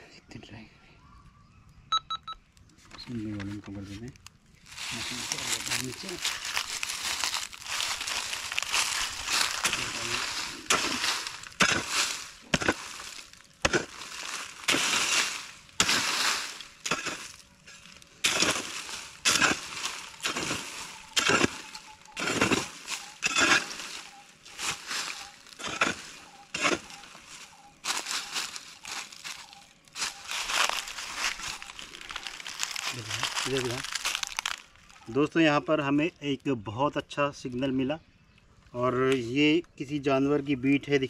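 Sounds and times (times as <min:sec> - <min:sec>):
mattock chopping gravelly soil: 0:03.1 - 0:34.7
earth and dry leaves scattering: 0:04.0 - 0:35.2.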